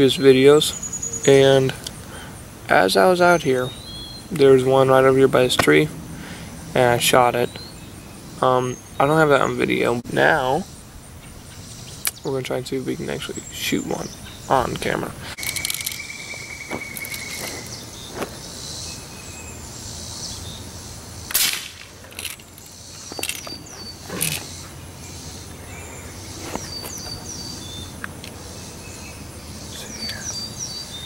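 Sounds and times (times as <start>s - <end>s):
outdoor background noise: 0.0s - 31.0s
small high chirps: 15.4s - 19.1s
pellet gun shot: 21.3s - 21.9s.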